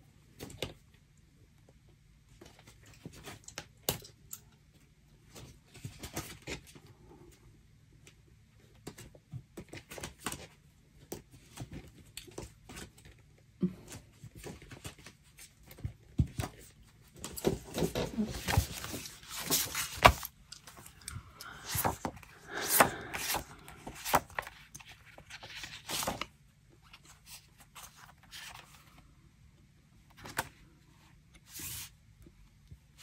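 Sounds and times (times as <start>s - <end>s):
paper rustling: 14.3s - 26.3s, 26.9s - 29.0s.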